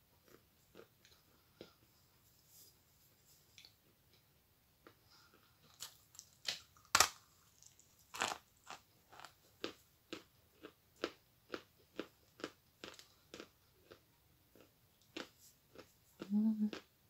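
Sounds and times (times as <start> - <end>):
chalk crunching while chewed: 5.6 - 14.0.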